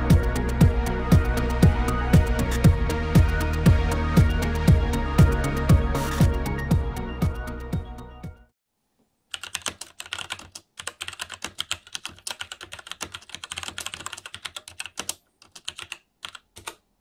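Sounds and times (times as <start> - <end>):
mechanical keyboard typing: 9.3 - 16.8.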